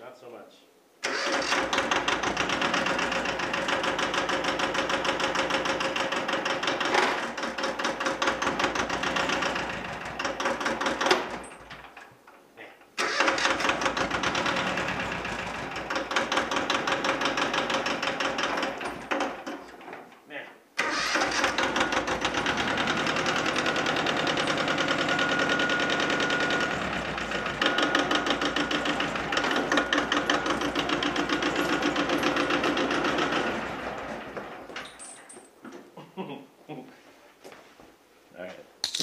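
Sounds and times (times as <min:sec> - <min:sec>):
diesel tractor engine clattering: 0:01.1 - 0:11.8, 0:13.0 - 0:19.4, 0:20.8 - 0:34.8.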